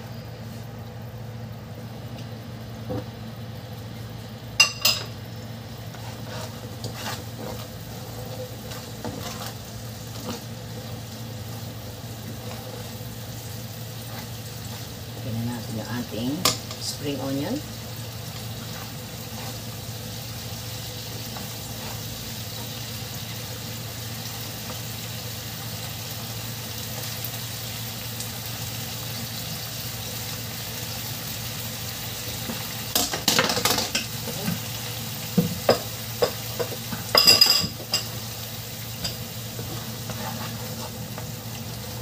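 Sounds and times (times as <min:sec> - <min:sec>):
sauce sizzling in a frying pan: 0:00.0 - 0:42.0
spatula scraping and knocking pan: 0:05.9 - 0:10.9, 0:12.2 - 0:13.0, 0:14.0 - 0:14.9, 0:18.3 - 0:19.9, 0:21.2 - 0:22.9, 0:39.0 - 0:41.4.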